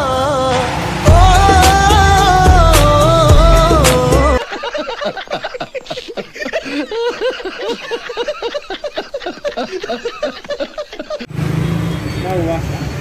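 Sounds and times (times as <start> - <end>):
rapid laughter: 4.2 - 11.3.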